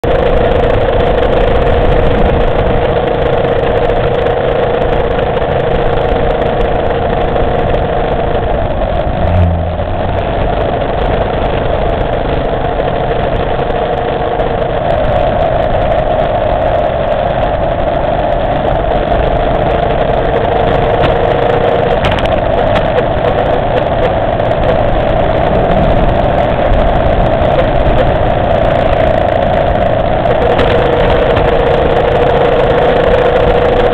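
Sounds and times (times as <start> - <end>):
motorcycle engine running: 0.0 - 33.9
low bump: 21.9 - 31.6.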